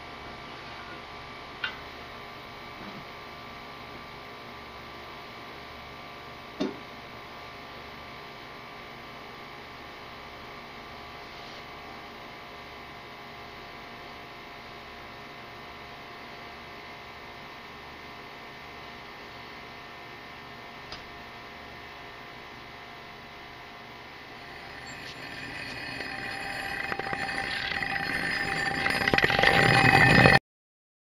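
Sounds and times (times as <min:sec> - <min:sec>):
steady hum with faint tones: 0:20.1 - 0:30.4.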